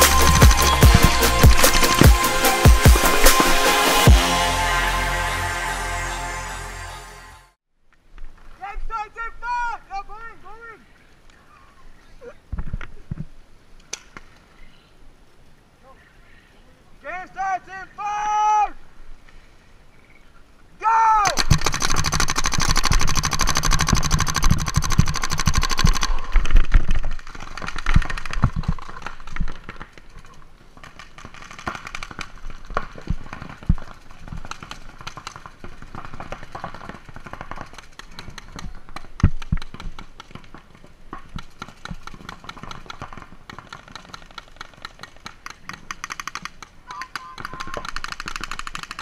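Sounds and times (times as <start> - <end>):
loud steady tone: 0.0 - 7.6
paintball markers popping: 41.2 - 49.0.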